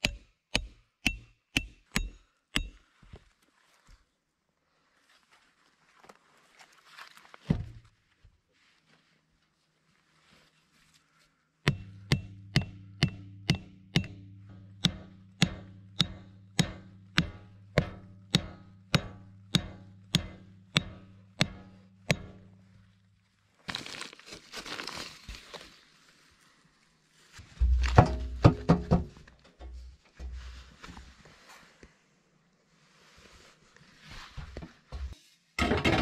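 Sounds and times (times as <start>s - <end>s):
tool striking wood: 0.0s - 2.8s, 11.7s - 22.5s, 27.6s - 30.4s
low steady hum: 11.7s - 23.4s, 27.4s - 31.2s
rustling: 22.5s - 32.1s, 32.7s - 35.2s.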